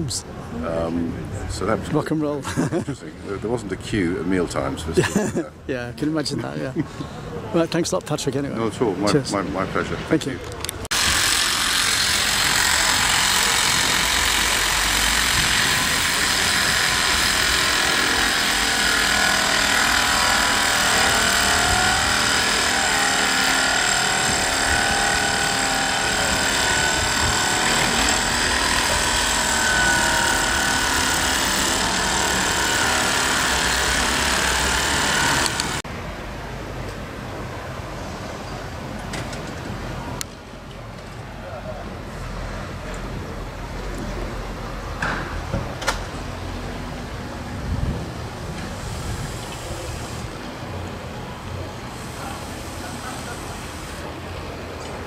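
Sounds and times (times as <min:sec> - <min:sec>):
machine running with whine: 0:10.9 - 0:35.8.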